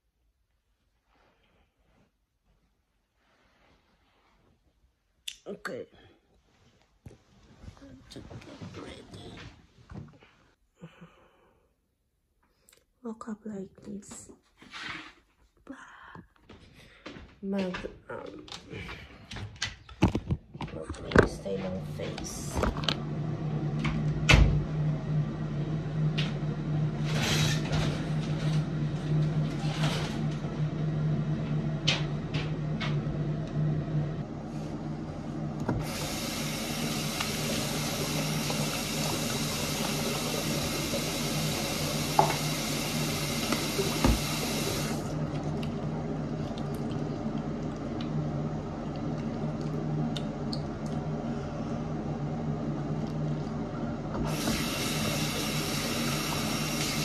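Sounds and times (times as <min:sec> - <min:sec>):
face washing by hand: 0:35.8 - 0:45.6, 0:54.3 - 0:57.0
water running from tap: 0:35.8 - 0:45.6, 0:54.3 - 0:57.0.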